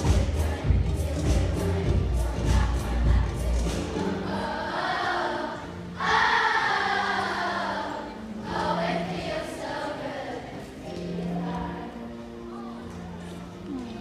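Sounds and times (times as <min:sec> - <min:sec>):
children's choir singing pop song: 0:00.0 - 0:13.0.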